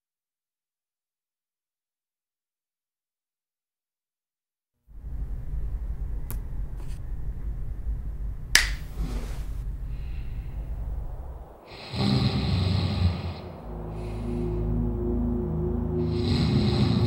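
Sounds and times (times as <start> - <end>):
low steady rumble: 4.9 - 17.0
sharp snap: 8.5 - 9.0.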